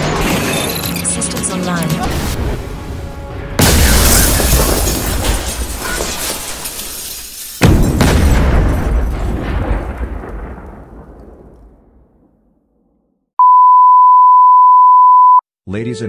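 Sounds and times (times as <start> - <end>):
explosion blasts rumbling: 2.0 - 5.6, 7.6 - 13.0.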